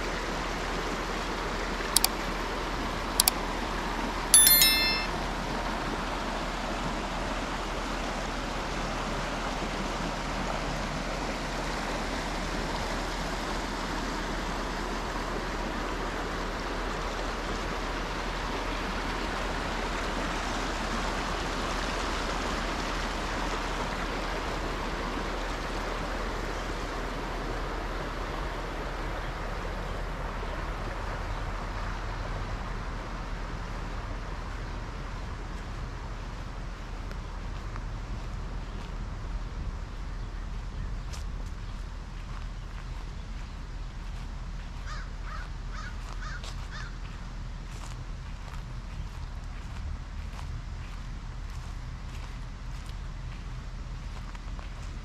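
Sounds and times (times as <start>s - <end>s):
creek water running over rocks: 5.9s - 28.4s.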